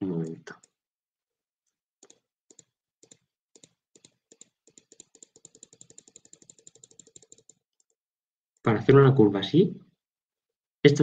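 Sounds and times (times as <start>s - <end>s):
computer mouse clicks: 2.0s - 8.0s.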